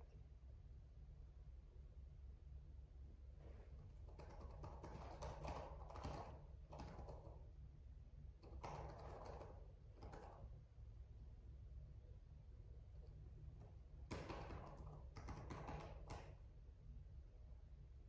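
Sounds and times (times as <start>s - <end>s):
low steady hum: 0.0s - 18.0s
keyboard typing: 4.0s - 7.4s, 8.4s - 10.5s, 14.1s - 16.4s.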